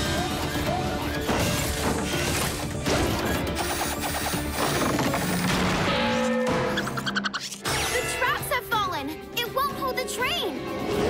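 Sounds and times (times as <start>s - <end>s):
cartoon crashing and clanking impacts: 4.0s - 8.2s.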